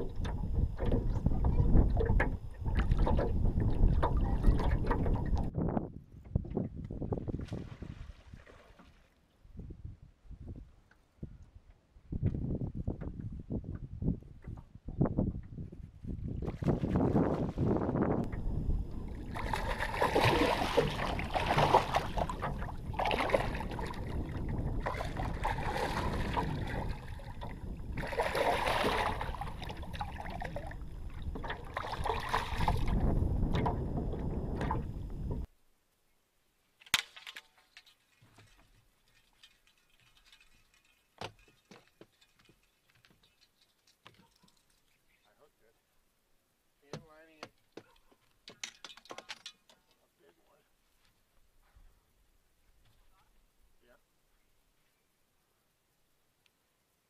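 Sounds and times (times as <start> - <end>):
water slapping against boat hull: 0.0 - 5.5, 19.2 - 35.5
wind buffeting microphone: 0.0 - 8.2, 9.5 - 35.5.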